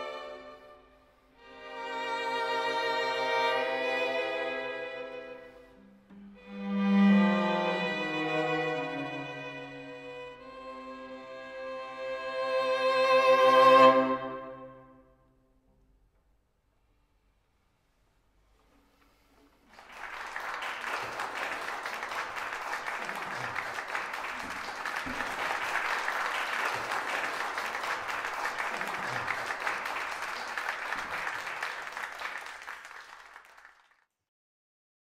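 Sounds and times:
audience applauding: 19.6 - 34.1.

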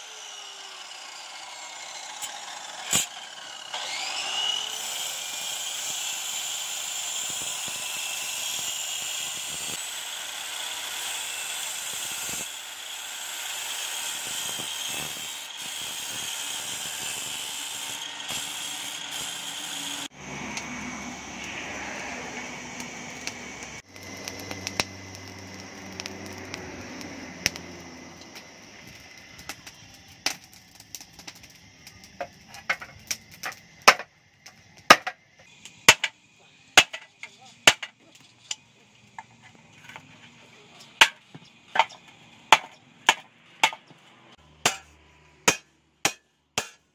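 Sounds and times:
air blower whining: 3.7 - 4.7, 17.9 - 29.1.

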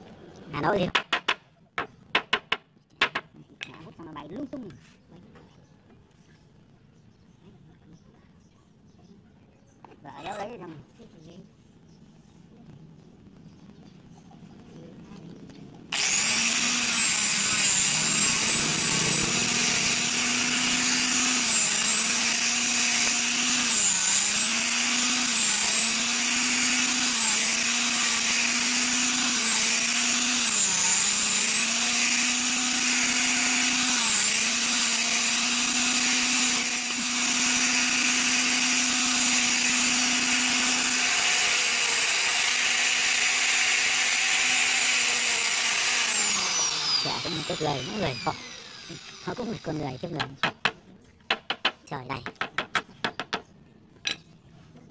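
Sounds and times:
angle grinder sanding wood: 16.0 - 50.3.

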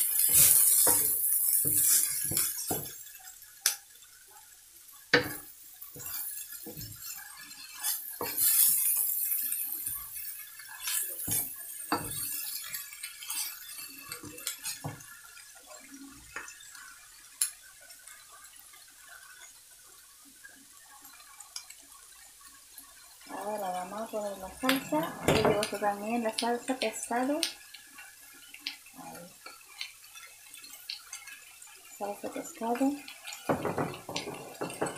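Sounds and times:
spatula scraping and knocking on wok: 0.0 - 3.1, 5.1 - 13.8, 32.6 - 34.9
vegetables sizzling: 0.0 - 34.9.

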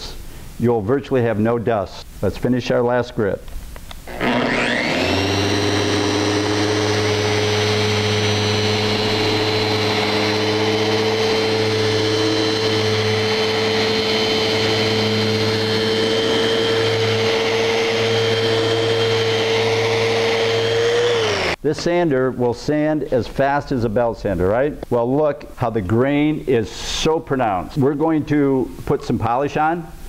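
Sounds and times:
orbit sander on wood: 4.1 - 21.6.

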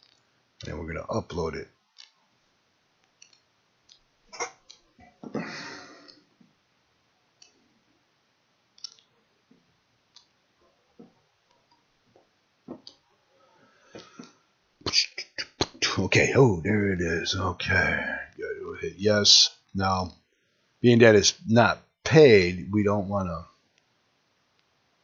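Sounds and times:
faint scattered clicks: 0.0 - 0.8, 1.9 - 2.2, 3.0 - 5.4, 7.4 - 7.6, 8.8 - 9.1, 10.1 - 10.4.

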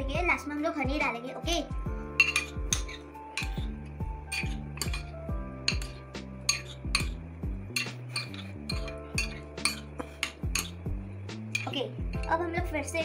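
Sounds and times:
background music with steady beat: 0.0 - 13.0
metal spoon clinking on glass bowl: 2.2 - 3.7, 4.3 - 10.8, 11.5 - 11.8.

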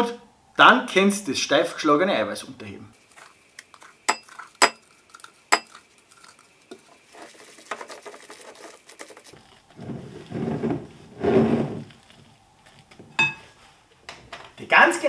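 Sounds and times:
spatula scraping wet mixture: 3.0 - 13.6
spatula clinking glass bowl: 3.2 - 6.9, 13.1 - 13.5.

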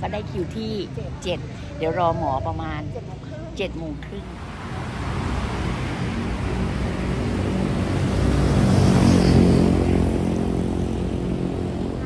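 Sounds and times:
vehicle engine passing by: 4.2 - 12.0.

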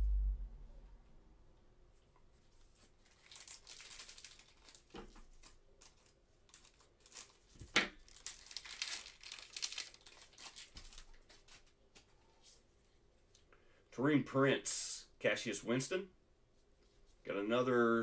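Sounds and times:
foil wrapper crinkling: 2.6 - 11.7
foil wrapper ripping: 2.9 - 11.6.

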